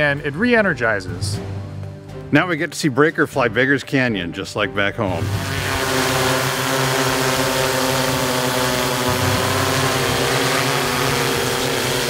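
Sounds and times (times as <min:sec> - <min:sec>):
quadcopter drone buzzing: 0:05.1 - 0:12.0.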